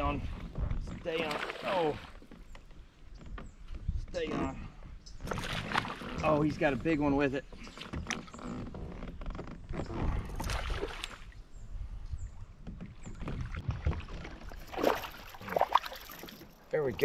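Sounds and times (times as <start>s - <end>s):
water splashing against kayak: 0.0s - 2.6s, 5.2s - 8.4s, 12.5s - 17.0s.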